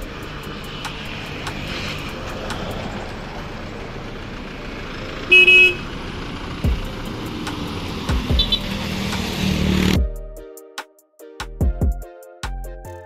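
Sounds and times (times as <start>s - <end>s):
engine and road noise: 0.0s - 10.4s
vehicle horn toot: 5.3s - 5.9s, 8.4s - 8.8s.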